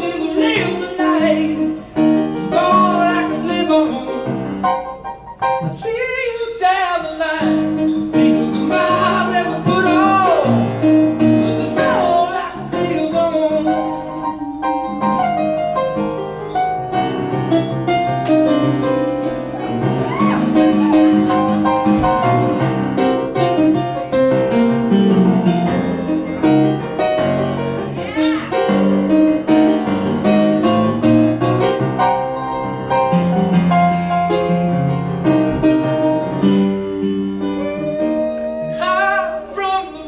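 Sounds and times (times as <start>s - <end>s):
man singing: 0.0s - 4.6s, 5.6s - 15.6s, 37.4s - 40.0s
piano chords: 0.0s - 40.0s.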